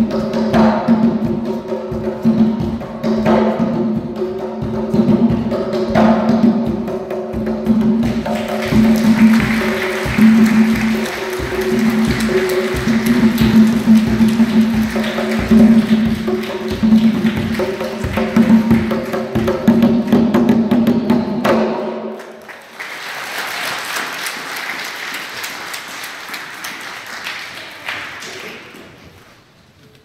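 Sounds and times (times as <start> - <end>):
hand drums beating: 0.0 - 22.1
applause: 8.2 - 19.6, 22.2 - 29.2.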